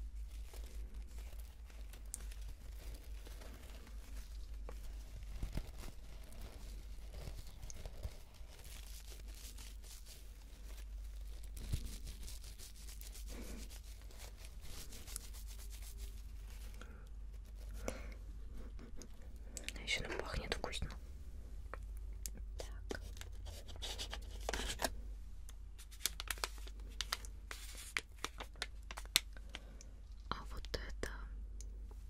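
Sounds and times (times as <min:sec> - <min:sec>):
mesh puff rustling and scrunching: 0:00.0 - 0:17.8.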